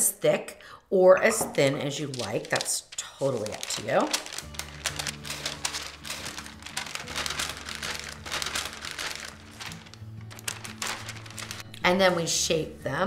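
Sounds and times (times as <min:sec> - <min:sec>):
parchment paper crinkling: 0:01.8 - 0:12.2.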